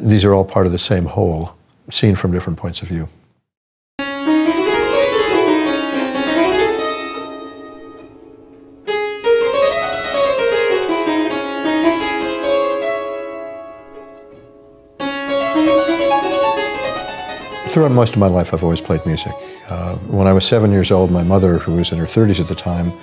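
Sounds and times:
harpsichord quick runs: 4.0s - 14.2s, 15.0s - 23.0s.

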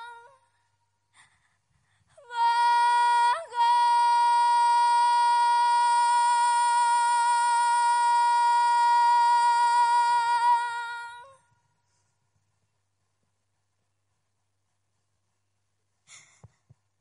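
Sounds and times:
woman singing high note: 0.0s - 0.4s, 2.2s - 11.4s.

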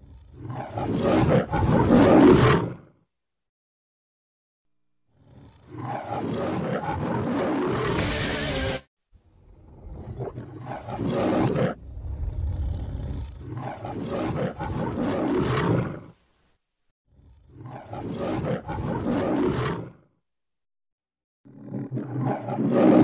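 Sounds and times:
lion roaring: 0.0s - 2.9s, 5.2s - 8.8s, 9.4s - 16.2s, 17.2s - 20.0s, 21.5s - 23.0s.

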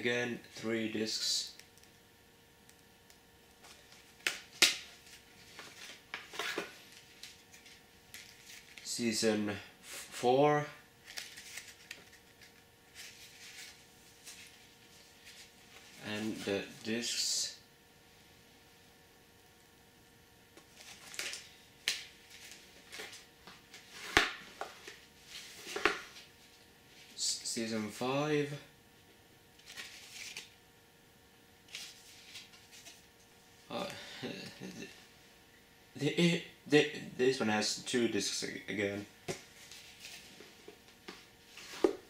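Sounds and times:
card packaging rustling: 3.6s - 8.9s, 11.0s - 16.4s, 20.6s - 26.3s, 29.6s - 30.5s.

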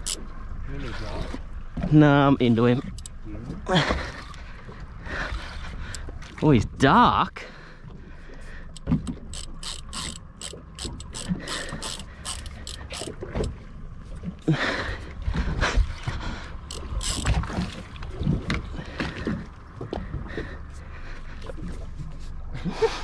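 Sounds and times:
fishing reel clicking and ratcheting: 0.0s - 0.2s, 2.9s - 3.2s, 8.7s - 13.5s, 16.6s - 17.4s.

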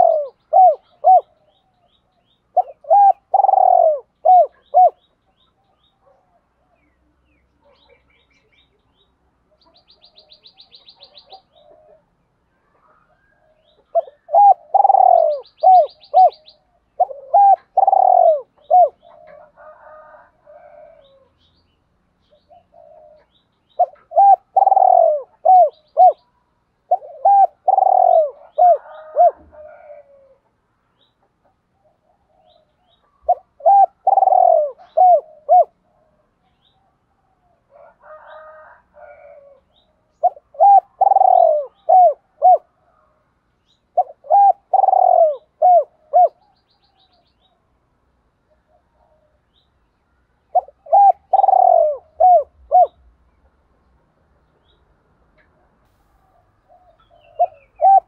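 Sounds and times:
dove cooing: 0.0s - 1.9s, 2.5s - 5.1s, 9.6s - 21.4s, 22.3s - 30.6s, 31.8s - 43.2s, 43.9s - 47.7s, 48.5s - 49.4s, 50.5s - 53.2s, 56.1s - 58.0s.

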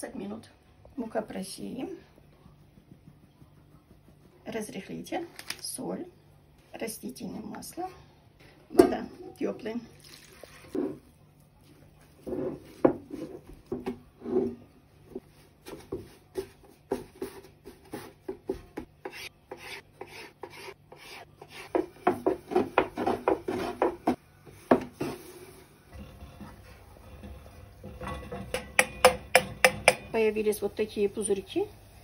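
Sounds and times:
hands kneading dough: 1.6s - 5.5s
rolling pin on wooden board: 15.6s - 25.2s.

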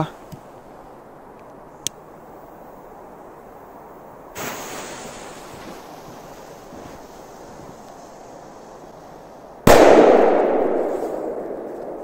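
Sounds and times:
low rush of outdoor air: 0.0s - 12.0s
firecracker fuse hissing: 4.3s - 9.6s.

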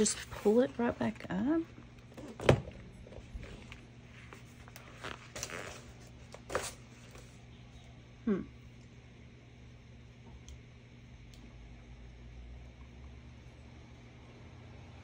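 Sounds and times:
steady low hum: 0.0s - 15.0s
paper rustling and crinkling: 3.1s - 7.4s.

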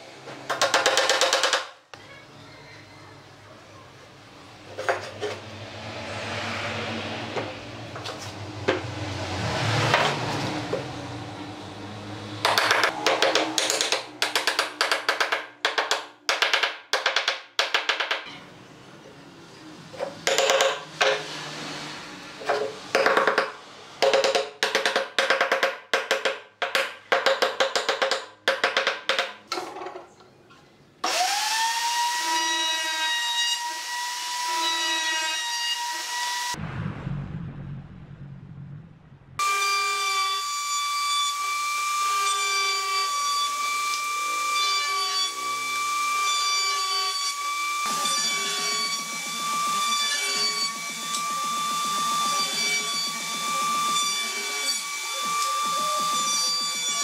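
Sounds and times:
hammer striking wood: 0.5s - 1.7s, 12.4s - 18.3s, 20.2s - 21.3s, 22.9s - 29.4s.

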